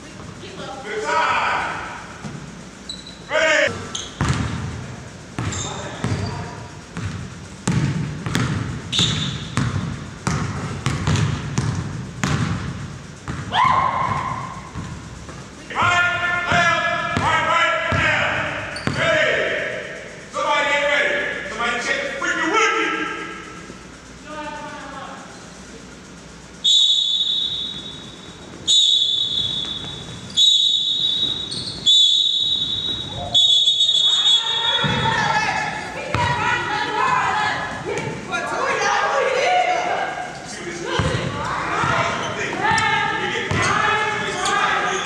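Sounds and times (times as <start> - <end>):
sneaker squeak: 2.2 - 4.6, 5.3 - 12.4, 17.9 - 19.1, 26.7 - 37.2, 40.2 - 45.0
basketballs bouncing on wooden floor: 3.7 - 15.5, 16.5 - 19.0, 34.7 - 38.2, 40.9 - 43.9
sports whistle blasts: 8.9 - 9.6, 26.6 - 35.1
rising squeal: 26.6 - 35.2.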